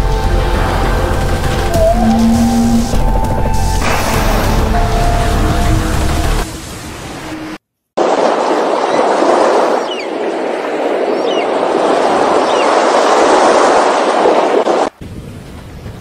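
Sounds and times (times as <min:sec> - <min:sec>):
loud rushing noise: 0:00.0 - 0:08.4
faint high falling cries: 0:01.7 - 0:03.3.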